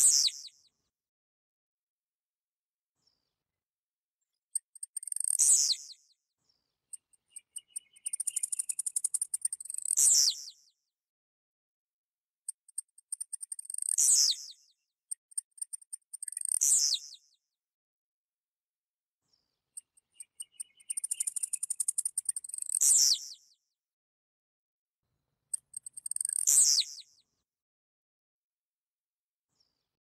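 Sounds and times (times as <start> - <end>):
bird singing: 0.0 - 0.7, 4.5 - 10.8, 12.6 - 17.4, 19.4 - 23.6, 25.5 - 27.2.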